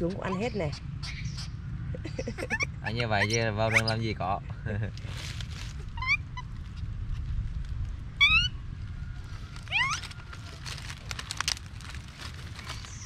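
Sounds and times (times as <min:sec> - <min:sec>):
monkey squeaking: 0:00.0 - 0:04.0, 0:05.7 - 0:06.9, 0:08.2 - 0:08.6, 0:09.7 - 0:10.6
dry leaves crackling: 0:04.9 - 0:13.0.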